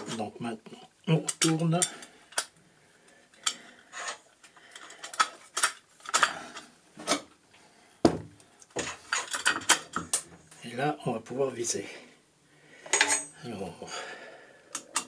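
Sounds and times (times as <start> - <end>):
metal parts clicking and knocking: 3.3 - 7.2, 8.7 - 10.3, 12.9 - 13.4.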